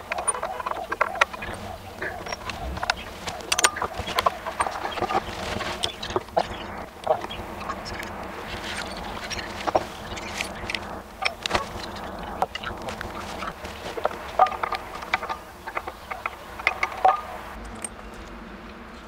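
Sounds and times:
metal hardware clinking: 12.4s - 18.1s.

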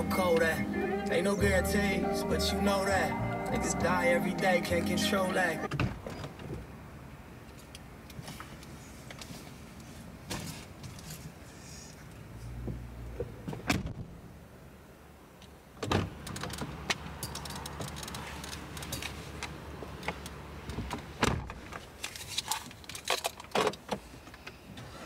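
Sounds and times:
rustling of person climbing in: 7.5s - 12.1s
car door opening: 20.1s - 21.8s.

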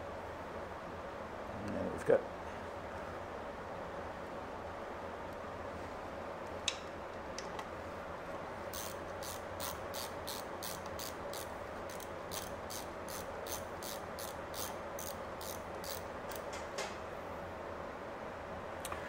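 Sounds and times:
hand ratchet clicking: 8.7s - 16.6s.

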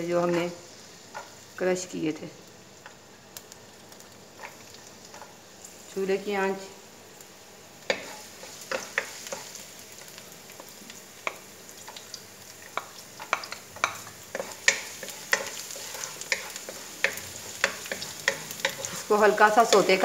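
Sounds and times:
garlic sizzling in oil: 0.0s - 20.0s
wooden spatula tapping wok: 7.9s - 9.5s, 10.6s - 20.0s.

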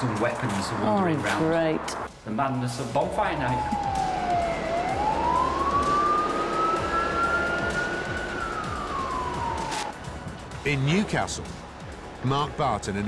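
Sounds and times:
emergency siren wailing: 3.2s - 10.0s.

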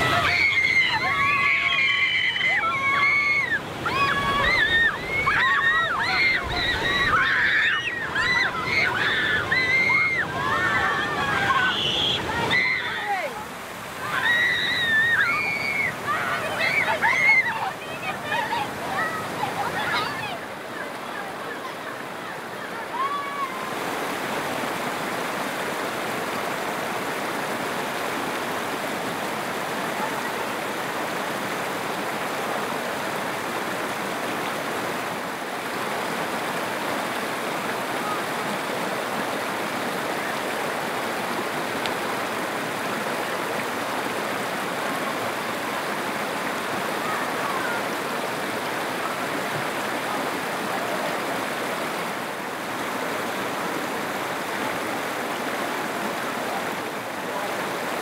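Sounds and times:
water pouring over waterfall: 0.0s - 19.2s.

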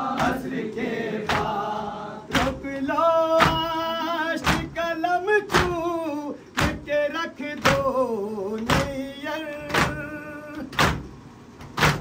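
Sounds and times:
chest beating slaps: 3.4s - 3.8s, 4.4s - 4.8s, 5.5s - 5.9s, 6.6s - 6.9s.

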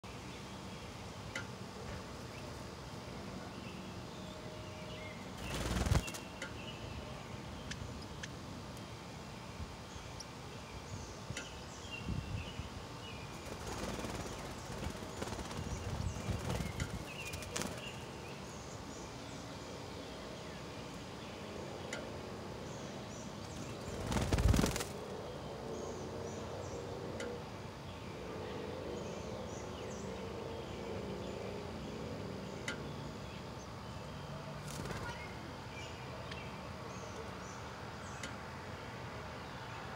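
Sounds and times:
bird chirps: 3.6s - 8.4s, 9.9s - 19.4s.

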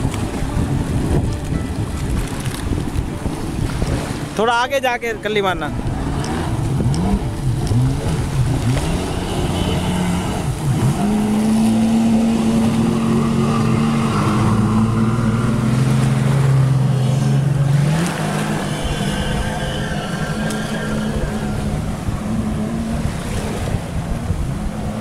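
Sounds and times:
jet ski engine revving: 5.6s - 25.0s.

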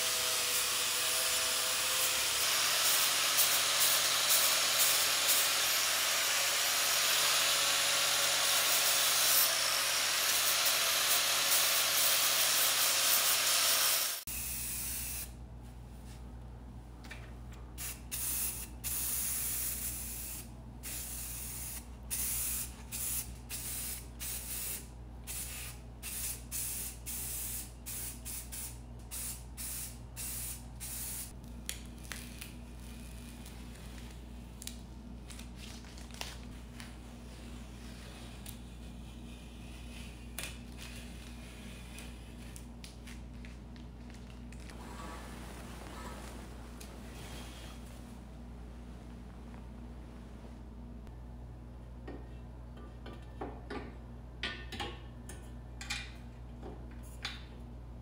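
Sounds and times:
angle grinder grinding metal: 0.0s - 14.2s.

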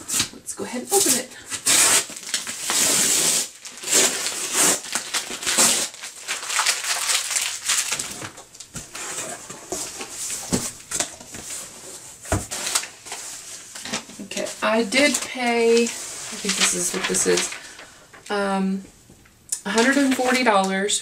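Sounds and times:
cardboard flaps rustling: 4.8s - 17.8s.

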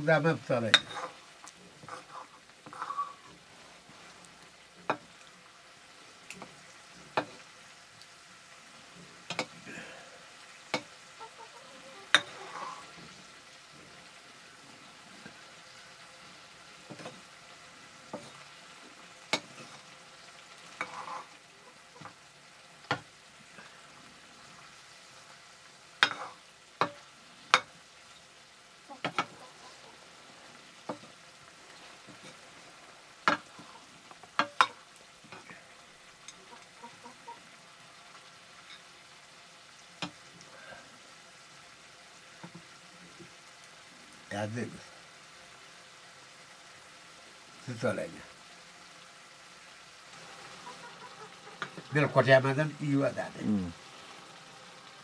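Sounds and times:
curry sizzling: 0.0s - 55.0s
metal ladle clinking on a pan: 0.7s - 1.1s.

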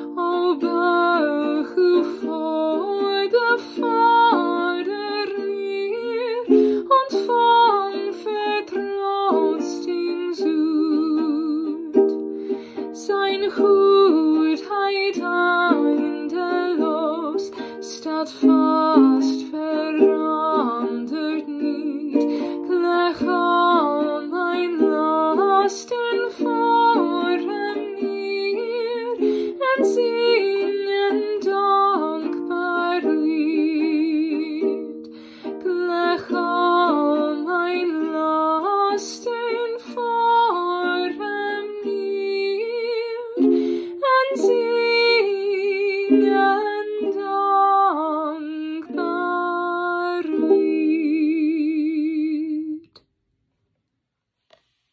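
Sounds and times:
woman singing hymn melody: 0.0s - 11.9s, 13.0s - 34.8s, 44.0s - 52.9s
ukulele strumming chords: 0.0s - 52.8s.

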